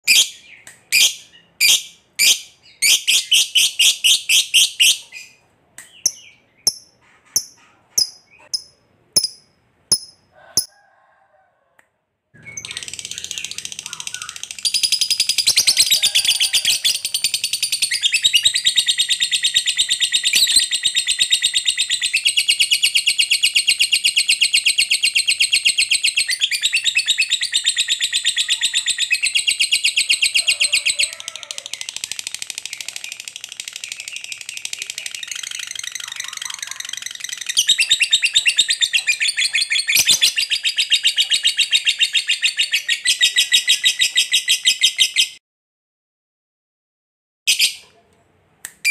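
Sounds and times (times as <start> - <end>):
lovebird chattering song: 0.1 - 10.7, 12.4 - 31.0, 31.7 - 45.4.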